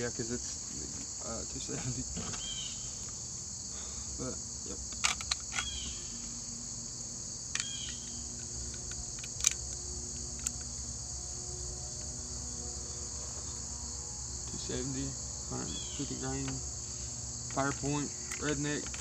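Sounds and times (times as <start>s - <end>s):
high-pitched insect chorus: 0.0s - 19.0s
rifle handling clicks and knocks: 4.8s - 6.3s, 7.5s - 10.9s, 16.4s - 16.6s, 17.5s - 19.0s.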